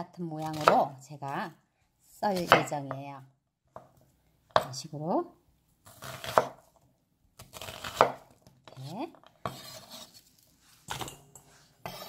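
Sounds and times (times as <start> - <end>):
knife slicing onion: 0.3 - 1.4, 5.8 - 6.8, 7.4 - 11.1, 11.8 - 12.0.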